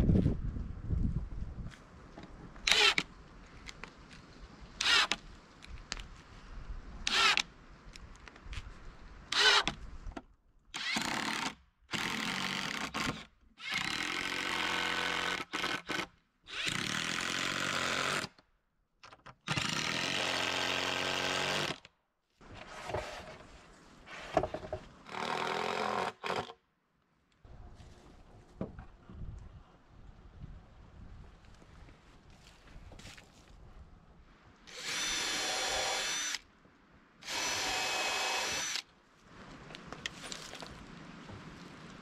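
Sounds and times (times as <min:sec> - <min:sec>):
impact driver driving screws into wood: 0:02.7 - 0:03.1, 0:09.3 - 0:09.8, 0:34.7 - 0:36.4, 0:37.2 - 0:38.8.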